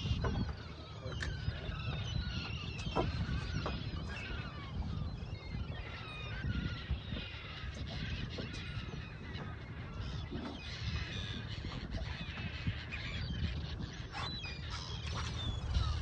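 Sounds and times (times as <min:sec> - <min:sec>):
seagulls calling: 0:00.0 - 0:16.0.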